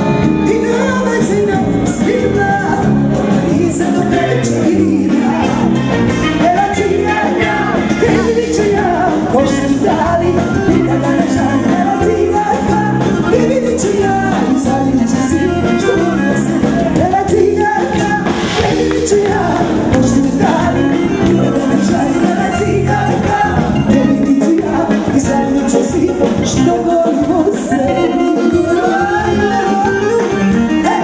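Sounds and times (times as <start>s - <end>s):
amplified band music: 0.0s - 31.0s
people singing along: 1.6s - 31.0s
woman singing into microphone: 3.5s - 31.0s.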